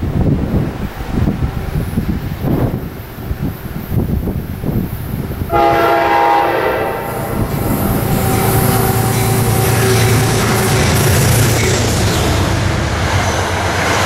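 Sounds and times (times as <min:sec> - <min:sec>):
train rumbling: 0:00.0 - 0:14.0
train air horn: 0:05.5 - 0:11.5.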